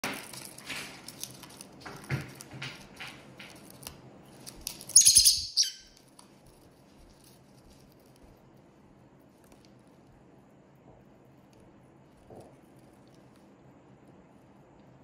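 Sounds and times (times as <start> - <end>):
bird chirp: 4.9 - 6.0.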